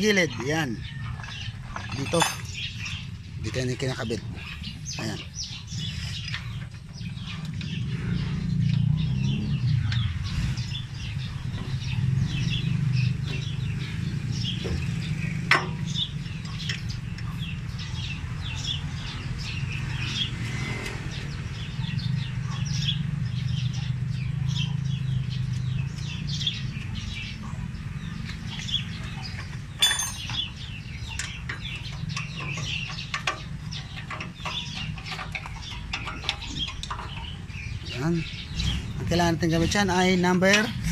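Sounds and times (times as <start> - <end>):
birds chirping: 0.0 - 40.9
wrench clinking on metal: 29.8 - 30.5.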